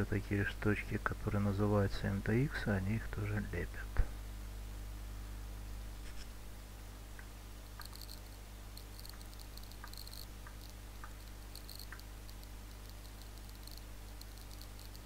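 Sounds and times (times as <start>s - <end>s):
low electrical hum: 0.0s - 15.0s
scroll wheel ticking: 8.8s - 15.0s.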